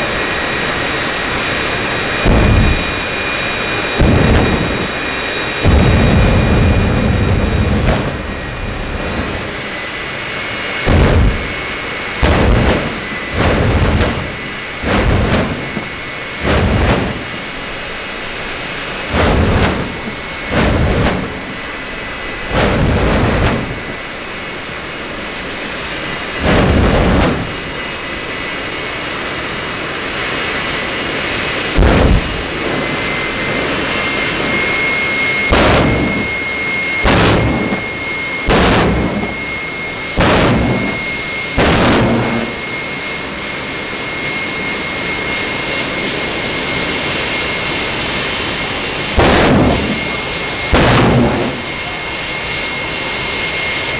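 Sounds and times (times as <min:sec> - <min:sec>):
jet engine roar and whine: 0:00.0 - 0:53.9
afterburner flame bursts: 0:01.9 - 0:28.3, 0:31.7 - 0:42.8, 0:48.2 - 0:52.4.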